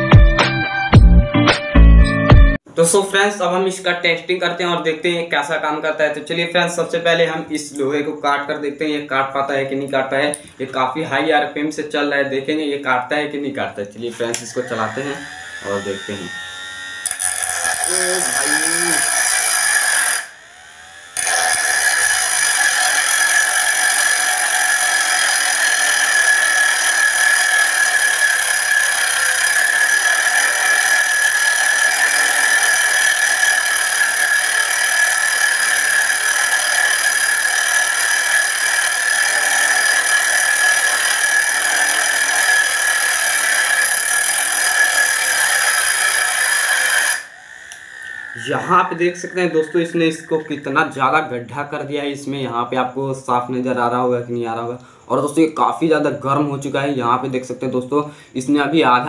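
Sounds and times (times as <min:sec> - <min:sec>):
angle grinder cutting metal rod: 0:13.3 - 0:52.4.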